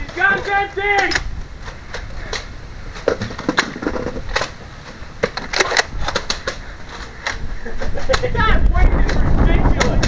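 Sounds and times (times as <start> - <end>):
wind rumbling on microphone: 5.8 - 10.0.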